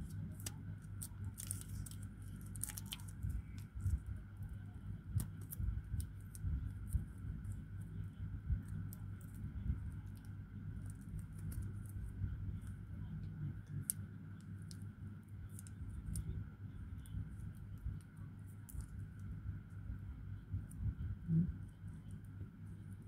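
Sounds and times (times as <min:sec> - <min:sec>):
paper sachets crinkling: 0:00.0 - 0:03.8
steady low hum: 0:00.0 - 0:23.0.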